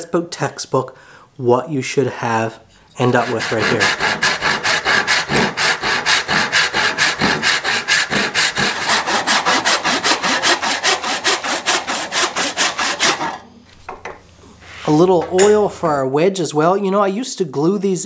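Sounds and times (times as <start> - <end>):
hand saw cutting wood: 3.0 - 13.5.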